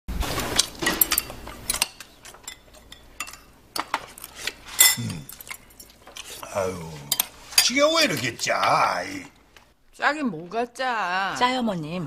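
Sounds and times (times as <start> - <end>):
spoons clinking against bowls: 0.8 - 6.3, 7.0 - 8.9.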